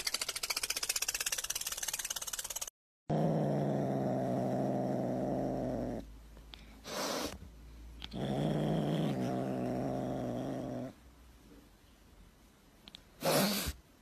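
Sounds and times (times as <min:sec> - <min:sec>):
kitten growling: 0:03.1 - 0:06.1, 0:08.0 - 0:11.0.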